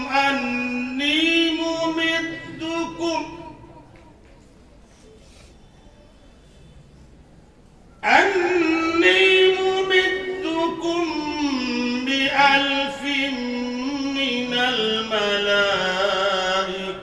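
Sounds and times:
man reciting melodically: 0.0 - 4.3, 8.0 - 17.0.

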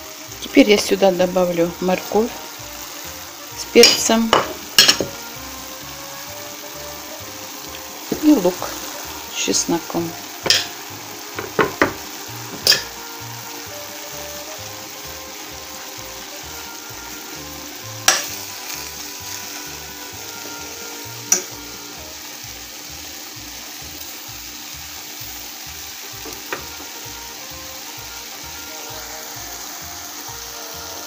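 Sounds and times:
food sizzling in a frying pan: 0.0 - 31.0
spatula knocking against pan: 3.8 - 5.2, 11.4 - 12.9.

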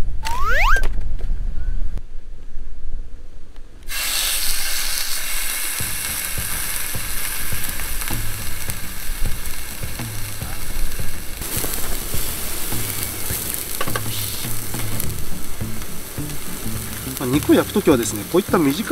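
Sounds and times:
steak sizzling in hot oil: 3.9 - 18.9.

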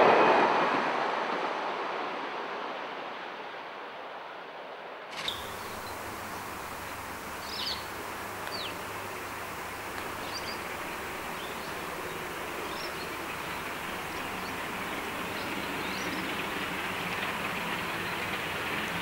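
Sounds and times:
distant steam locomotive rumble: 5.1 - 19.0
bird chirps: 5.2 - 16.5.

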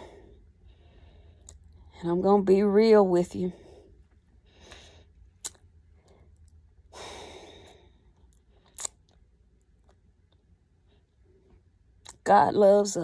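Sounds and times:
woman breathing and sighing: 3.5 - 8.8.

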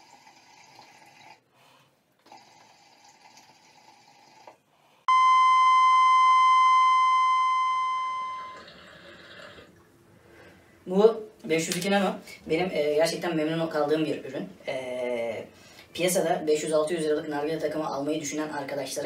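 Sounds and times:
hookah bubbling: 0.0 - 1.5, 2.2 - 4.6, 8.2 - 10.0
loud electronic beep: 5.1 - 8.6.

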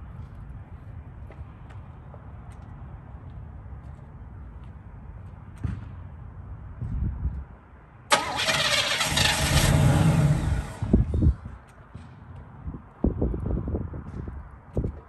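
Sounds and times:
car engine cranking and running: 8.1 - 11.4.

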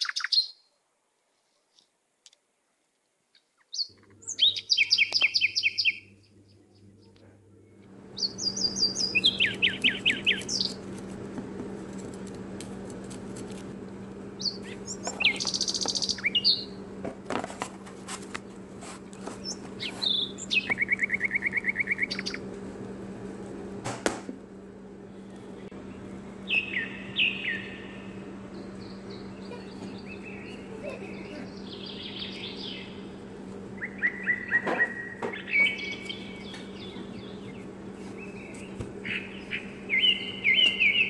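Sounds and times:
small birds chirping trills: 0.0 - 0.7, 3.4 - 11.0, 14.3 - 16.8, 19.0 - 22.5, 25.0 - 41.0
steady low hum: 2.0 - 41.0.

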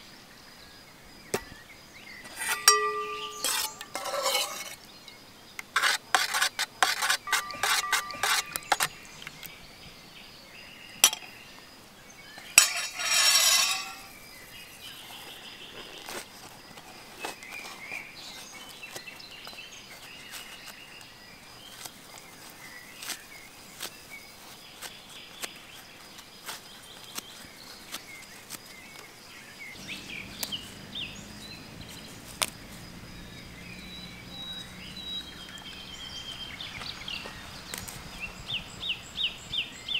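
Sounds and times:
faint birdsong: 0.0 - 39.9
metal spoon clinking steel bowls: 2.3 - 5.2, 6.9 - 8.9, 12.4 - 14.2.

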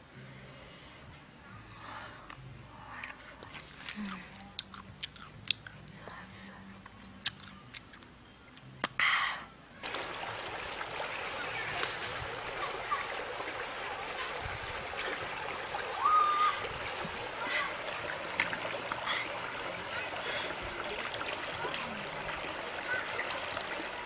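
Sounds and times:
mouth clicks from chewing: 3.0 - 6.2, 6.8 - 9.0
stream running over stones: 9.8 - 24.0.

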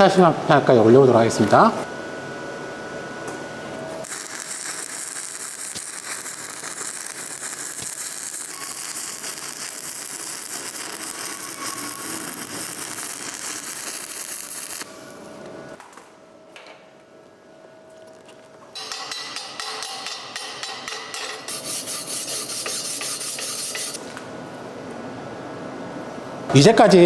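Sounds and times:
welding arc crackling: 4.0 - 15.0, 20.9 - 24.0.

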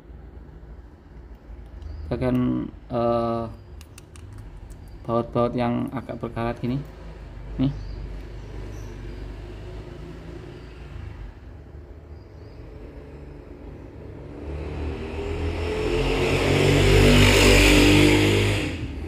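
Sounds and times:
vehicle engine passing by: 6.8 - 19.0.

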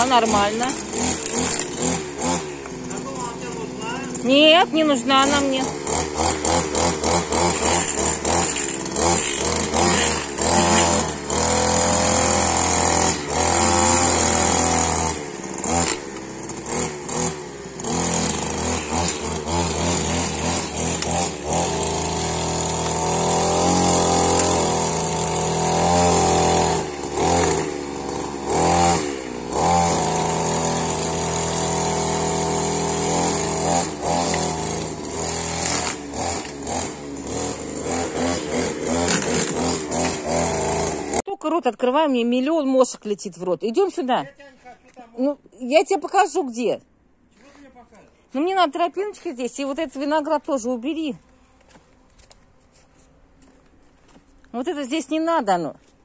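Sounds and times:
grass trimmer engine revving: 0.0 - 41.3.

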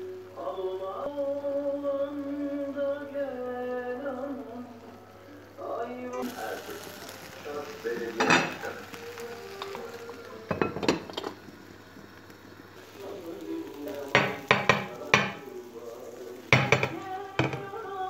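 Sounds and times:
cookware clattering and clinking: 10.5 - 11.4, 16.5 - 17.7.

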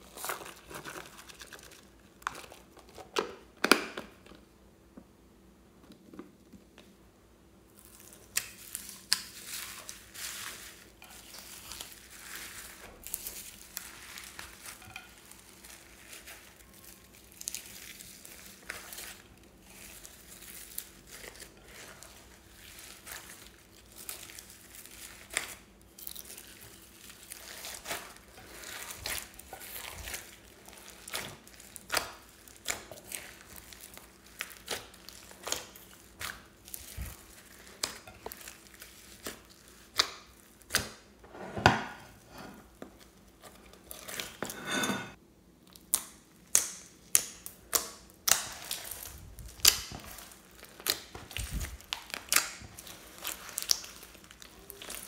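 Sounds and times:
slime squelching and crackling: 0.0 - 3.4, 7.7 - 41.2, 45.6 - 55.0.

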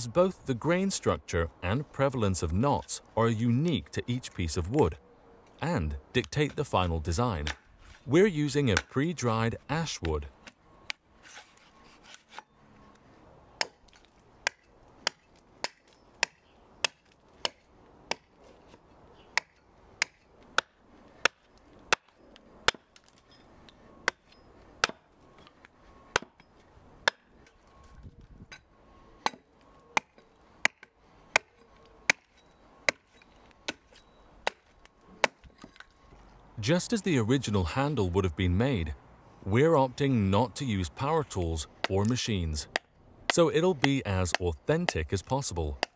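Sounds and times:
axe chopping wood: 7.4 - 7.6, 13.6 - 18.3, 19.4 - 23.1, 24.8 - 25.1, 26.1 - 26.4, 27.0 - 27.3, 29.2 - 35.8.

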